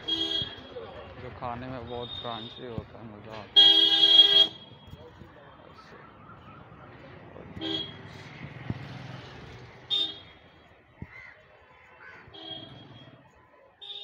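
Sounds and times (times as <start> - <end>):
street traffic: 0.0 - 14.0
motorbike engines running: 5.7 - 10.8
crow cawing: 11.1 - 11.4, 12.0 - 12.5.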